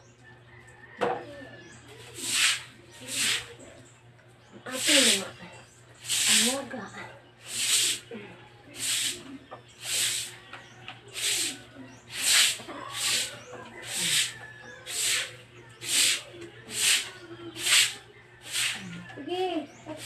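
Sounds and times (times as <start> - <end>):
stiff broom scrubbing wet concrete: 2.0 - 3.6, 4.7 - 5.3, 6.0 - 6.8, 7.4 - 8.1, 8.7 - 10.4, 11.0 - 19.0.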